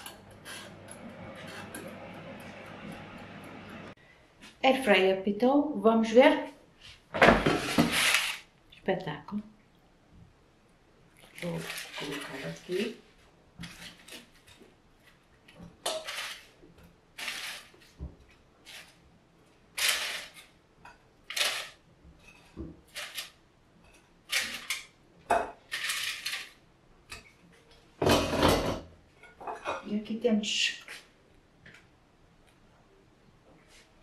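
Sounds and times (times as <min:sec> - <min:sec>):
kitchenware clinking and scraping: 0:00.0 - 0:03.1, 0:11.3 - 0:13.0, 0:15.5 - 0:18.0, 0:19.8 - 0:30.1.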